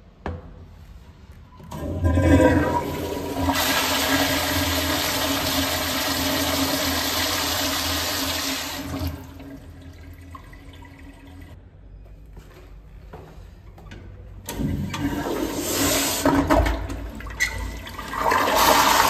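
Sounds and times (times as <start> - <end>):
toilet flushing: 1.7 - 11.6, 14.5 - 19.0.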